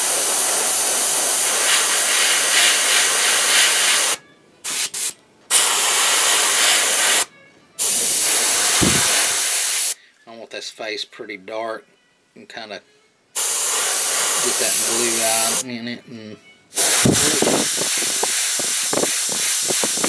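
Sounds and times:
airbrush spraying hiss: 0.0 - 10.0, 13.4 - 15.6, 16.7 - 20.0
low thump: 8.8 - 9.2.

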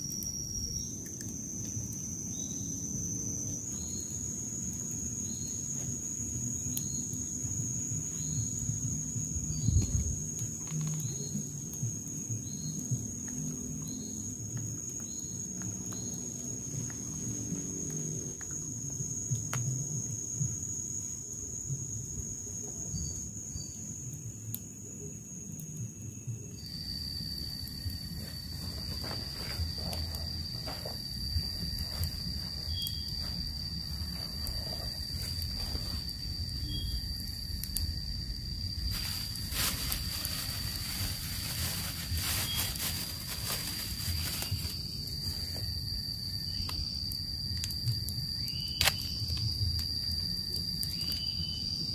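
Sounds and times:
insects buzzing: 0.0 - 51.9
short repeating insect call: 0.0 - 51.9
plastic wrapper rustling: 38.9 - 44.8.

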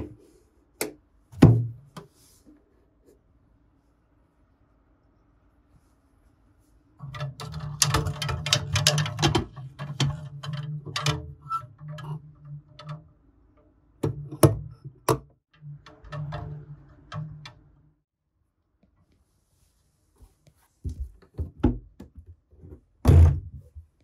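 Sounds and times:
wooden hanger clicking and rattling: 7.0 - 13.0.

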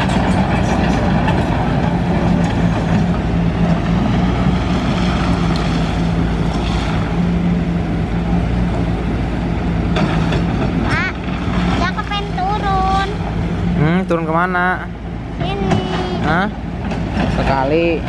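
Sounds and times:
diesel engines droning: 0.0 - 18.0.

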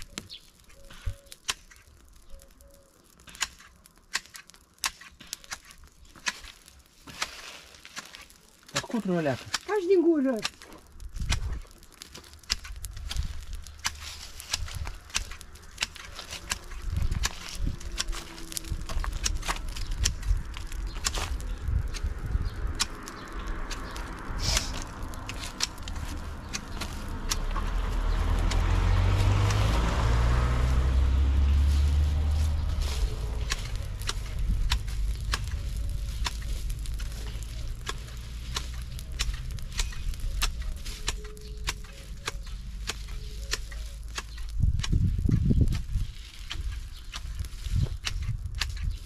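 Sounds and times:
fire crackling and popping: 0.0 - 49.0
vehicle passing: 22.1 - 39.7.

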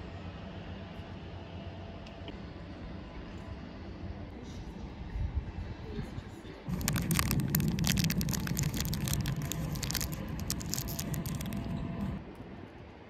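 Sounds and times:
low rumble: 6.7 - 12.2
plastic wrapper crinkling: 6.7 - 12.2.

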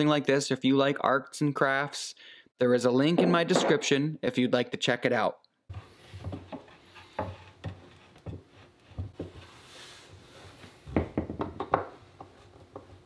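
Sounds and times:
wooden plaque knocking and tapping: 10.9 - 13.0.

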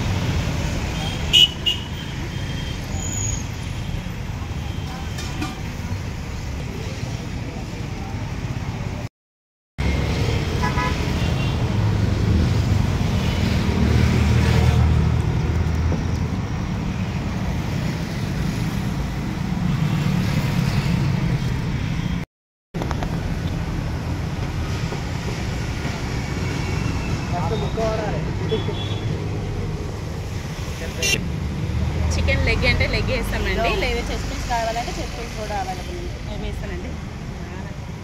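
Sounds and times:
street traffic rumble: 0.0 - 9.1, 9.8 - 38.0
vehicle horn toot: 10.6 - 11.5.

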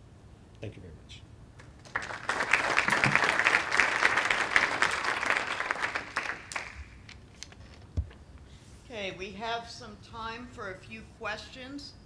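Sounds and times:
audience applauding: 1.6 - 7.1.

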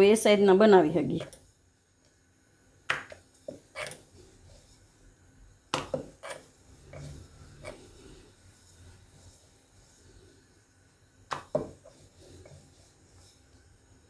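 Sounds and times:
rolling pin rubbing on dough: 3.2 - 14.0
rolling pin knocking on board: 11.3 - 11.8.

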